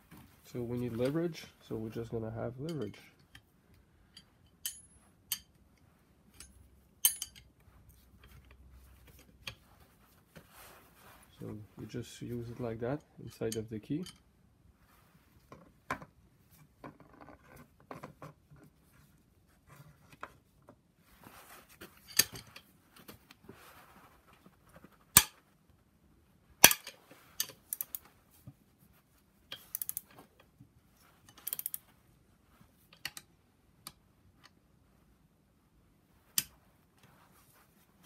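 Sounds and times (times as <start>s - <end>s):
metallic clicks of hand tools: 4.1s - 5.6s, 6.3s - 7.5s, 26.6s - 28.1s, 29.5s - 30.2s, 31.3s - 31.8s
sharp metal clanks: 6.4s - 7.5s.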